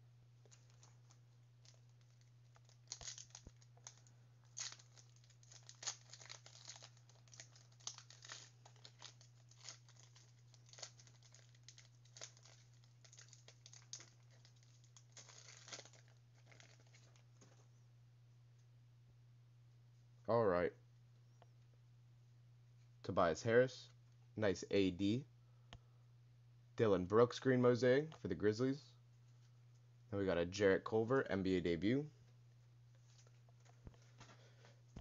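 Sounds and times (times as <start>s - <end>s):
steady low hum: 0.0s - 35.0s
card wrappers crinkling and tearing: 0.4s - 17.6s.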